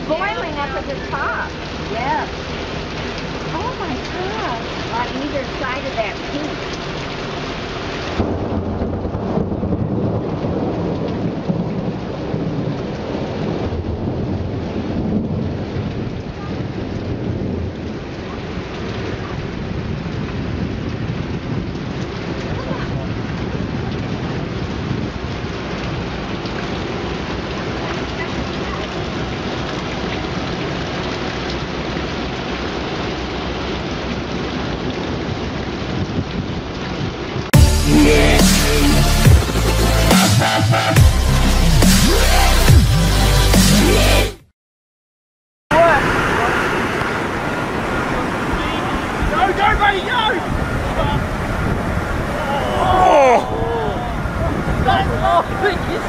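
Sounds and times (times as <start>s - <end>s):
rain falling: 0.0s - 44.3s, 45.7s - 56.0s
low thunder rumble: 8.1s - 26.8s.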